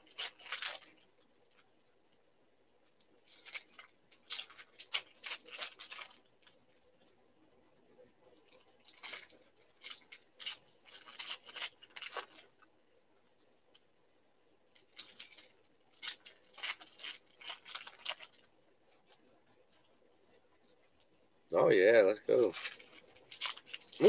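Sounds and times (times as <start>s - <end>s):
foil wrappers crinkling and tearing: 0.0s - 1.7s, 2.8s - 6.8s, 8.4s - 12.6s, 14.7s - 19.1s, 22.0s - 24.0s.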